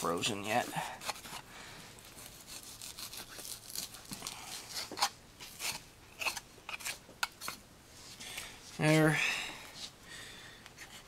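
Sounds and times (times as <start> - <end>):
knife scraping meat off bone: 2.0 - 7.6.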